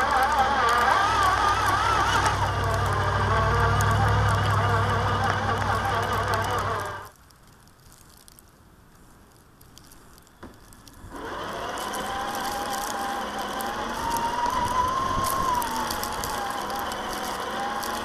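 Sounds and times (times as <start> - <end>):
toy car electric motor whine: 0.0 - 7.1, 11.1 - 18.0.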